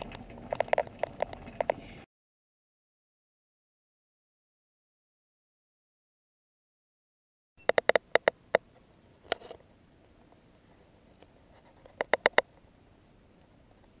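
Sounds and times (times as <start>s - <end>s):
sharp clicks: 7.6s - 8.6s, 11.9s - 12.5s.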